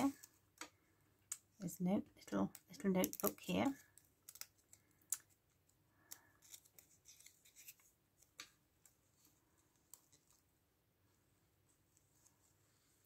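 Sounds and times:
paper and card rustling: 2.4s - 10.6s.

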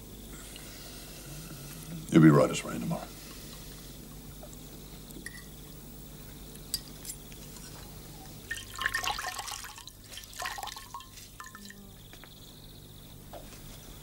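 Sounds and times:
water splashing and dripping: 8.5s - 11.8s.

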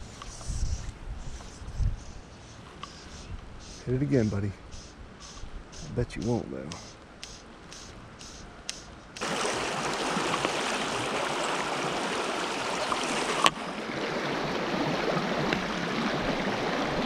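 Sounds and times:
sharp click: 5.2s - 9.2s
stream rushing over stones: 9.2s - 17.0s.

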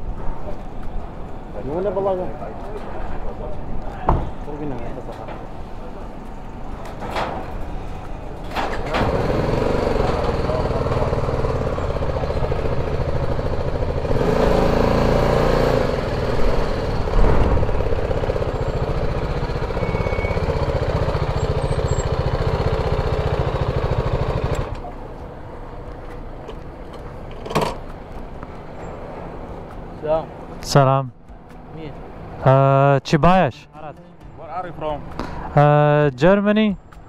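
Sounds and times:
motorcycle engine idling: 9.4s - 14.1s, 16.1s - 25.1s.

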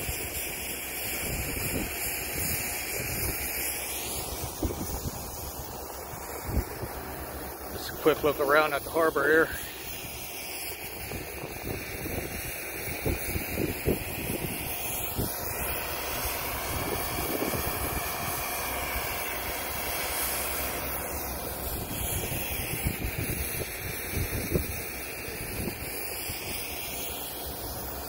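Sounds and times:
wind gusts buffeting microphone: 4.3s - 5.6s, 11.0s - 15.5s, 16.6s - 18.4s, 21.7s - 24.8s.

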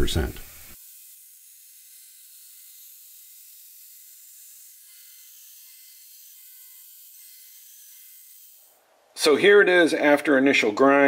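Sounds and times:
belt grinder grinding steel: 0.0s - 8.8s.

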